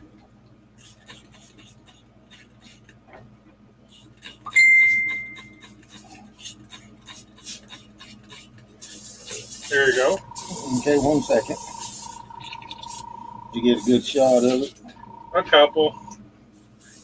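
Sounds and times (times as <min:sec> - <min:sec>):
bright ringing ding: 0:04.6 - 0:05.5.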